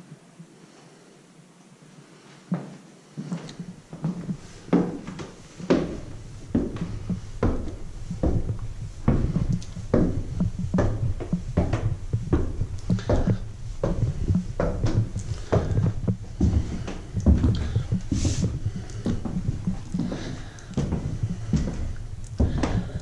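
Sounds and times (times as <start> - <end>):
footsteps on wooden stairs: 2.5 - 23.0
low rumble: 6.0 - 23.0.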